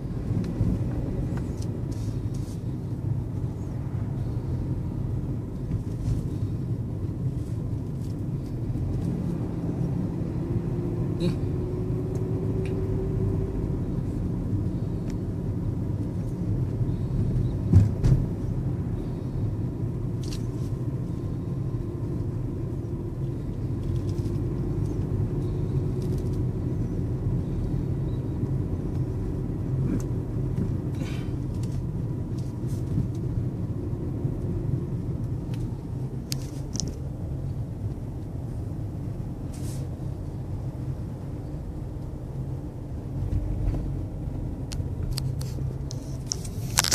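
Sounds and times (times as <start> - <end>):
car engine and road rumble: 0.0 - 46.9.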